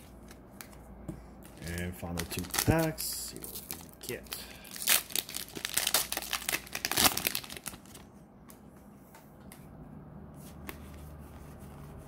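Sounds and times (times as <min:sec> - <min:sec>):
wrapper tearing and crinkling: 0:01.6 - 0:08.0.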